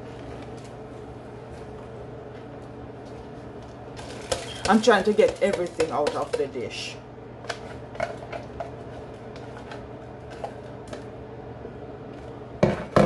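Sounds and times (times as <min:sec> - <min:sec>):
steady low hum: 0:00.0 - 0:13.0
utensil tapping a dish: 0:04.2 - 0:06.7.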